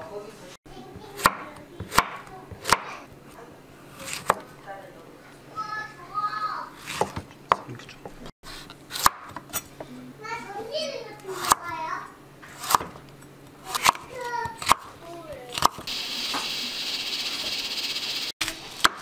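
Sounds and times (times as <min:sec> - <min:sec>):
knife chopping on wooden board: 0:01.1 - 0:02.9, 0:04.0 - 0:04.5, 0:06.8 - 0:07.8, 0:08.9 - 0:09.5, 0:12.5 - 0:13.0, 0:13.7 - 0:14.9.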